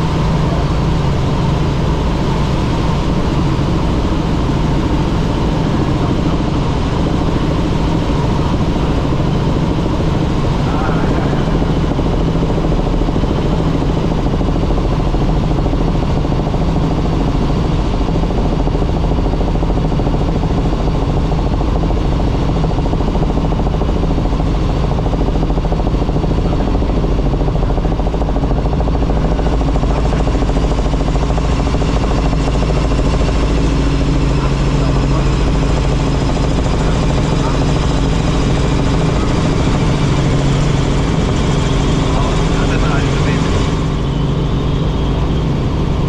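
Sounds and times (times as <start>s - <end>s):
helicopter engine and rotor drone: 0.0s - 46.0s.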